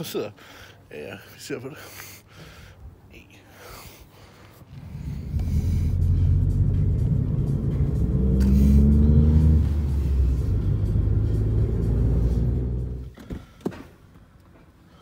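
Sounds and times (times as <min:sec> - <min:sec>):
car engine and road rumble: 0:04.6 - 0:14.9.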